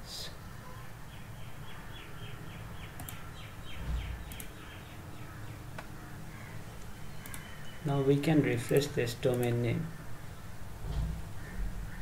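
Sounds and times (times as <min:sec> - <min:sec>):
low room noise: 0:00.0 - 0:12.0
sharp clicks: 0:03.0 - 0:03.2, 0:04.1 - 0:04.6, 0:07.2 - 0:07.5, 0:08.6 - 0:09.6.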